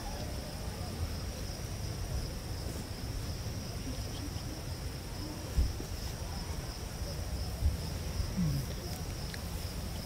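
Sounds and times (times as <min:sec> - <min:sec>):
crickets and insects trilling: 0:00.0 - 0:10.0.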